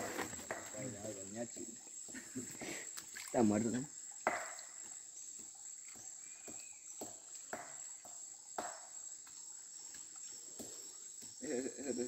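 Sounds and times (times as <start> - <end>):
high-pitched insect drone: 0.9 - 12.0
hands splashing in water: 2.9 - 3.5.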